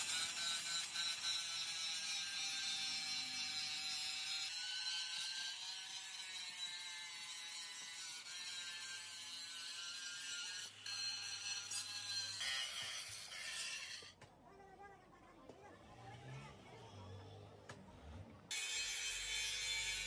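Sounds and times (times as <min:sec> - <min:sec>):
angle grinder grinding metal: 0:00.0 - 0:14.2, 0:18.5 - 0:20.0.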